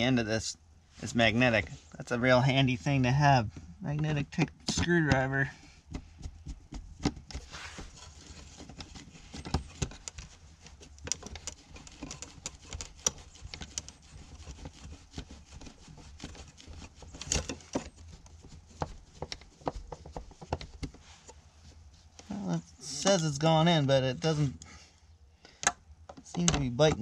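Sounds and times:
low steady rumble: 0.0 - 27.0
screwdriver clicking and scraping: 7.0 - 18.0.

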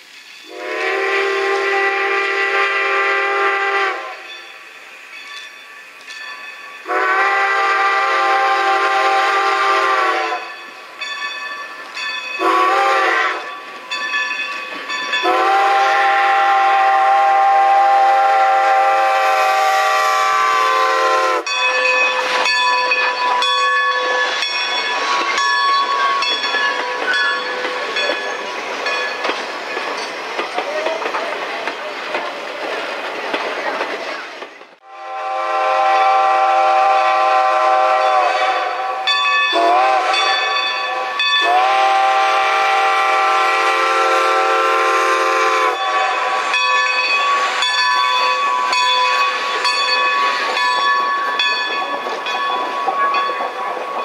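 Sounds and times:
steam whistle blasts: 0.4 - 4.3, 6.8 - 10.5, 12.4 - 13.5, 15.2 - 21.5, 34.8 - 46.6
train wheels clicking over rail joints: 10.5 - 18.2, 21.5 - 34.8, 45.7 - 54.0.

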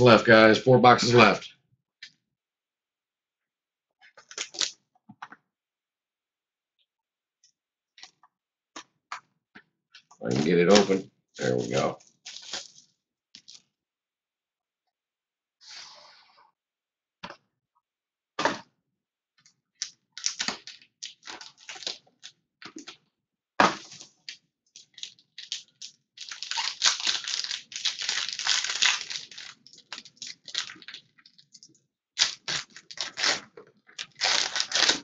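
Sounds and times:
foil wrapper crinkling: 4.2 - 4.7, 10.7 - 13.6, 19.8 - 22.9, 23.8 - 31.6, 32.2 - 35.0.

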